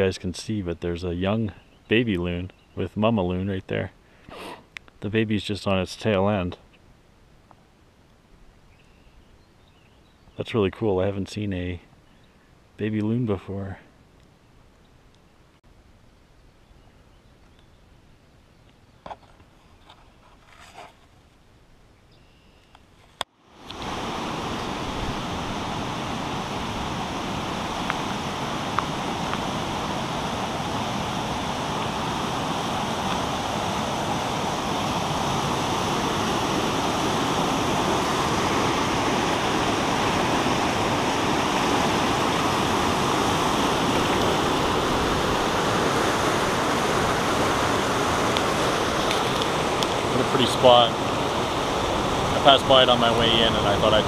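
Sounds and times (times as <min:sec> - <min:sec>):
river rapids rushing over rocks: 0:23.7 - 0:54.0.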